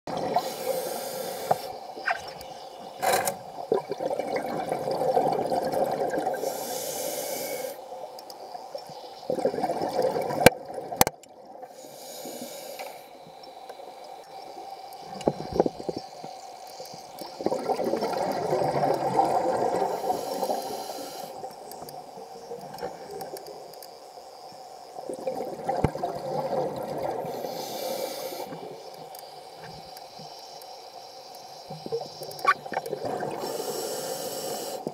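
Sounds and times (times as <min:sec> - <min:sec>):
regulator inhalation hiss: 0:00.3 - 0:03.2, 0:06.2 - 0:09.3, 0:11.6 - 0:17.1, 0:19.8 - 0:22.6, 0:27.2 - 0:32.5, 0:33.2 - 0:34.9
bubbling exhalations underwater: 0:03.7 - 0:06.4, 0:09.3 - 0:11.0, 0:17.4 - 0:20.0, 0:32.5 - 0:33.6.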